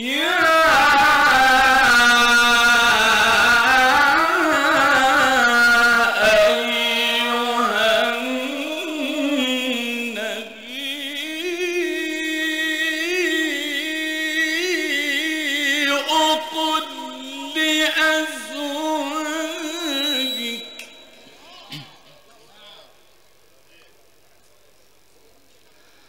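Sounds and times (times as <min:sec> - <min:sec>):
man chanting melodically: 0:00.0 - 0:23.1.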